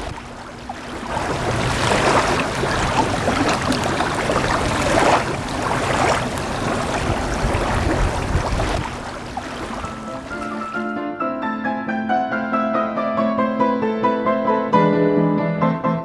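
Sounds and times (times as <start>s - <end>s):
wind buffeting microphone: 0.0s - 0.4s, 1.0s - 10.4s
water lapping: 0.0s - 10.8s.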